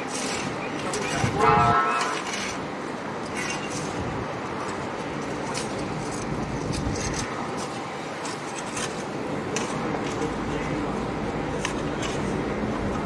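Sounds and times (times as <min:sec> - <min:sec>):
metal scraping gravel: 0:00.0 - 0:10.3
diesel excavators running: 0:00.0 - 0:13.0.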